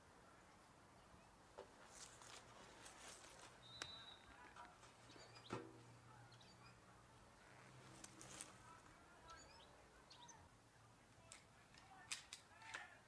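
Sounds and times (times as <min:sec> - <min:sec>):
faint bird chirps: 0:03.6 - 0:04.4, 0:05.0 - 0:07.5, 0:09.2 - 0:10.5.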